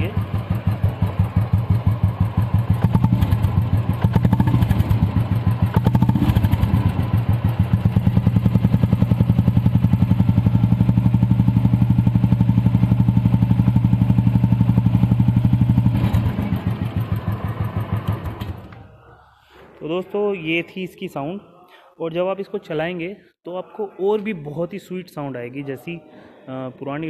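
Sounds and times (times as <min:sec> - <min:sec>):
motorcycle engine idling: 0:00.0 - 0:19.1.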